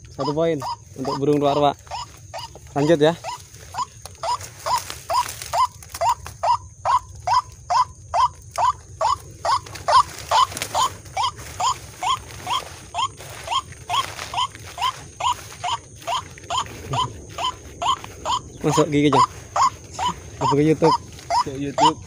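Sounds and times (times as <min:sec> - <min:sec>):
waterhen call: 0:00.0 - 0:22.0.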